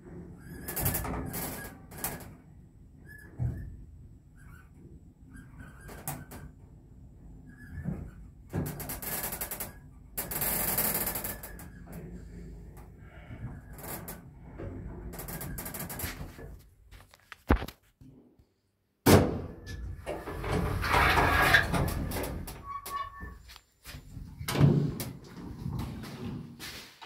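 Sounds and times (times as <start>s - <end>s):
lift doors opening with rattle: 19.6s - 23.5s.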